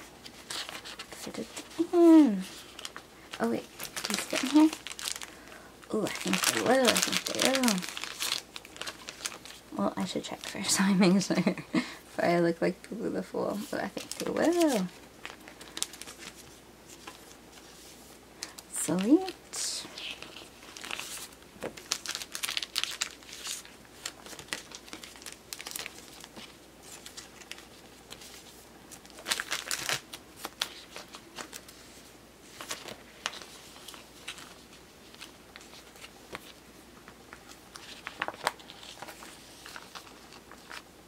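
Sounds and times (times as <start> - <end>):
plastic sleeves crinkling: 0.0 - 11.8, 13.5 - 41.0.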